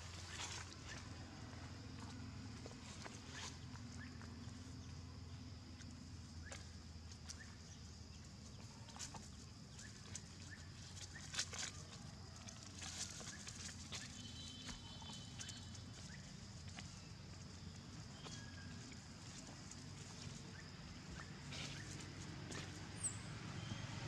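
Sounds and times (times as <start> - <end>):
monkeys scampering over dry leaves: 9.8 - 23.1.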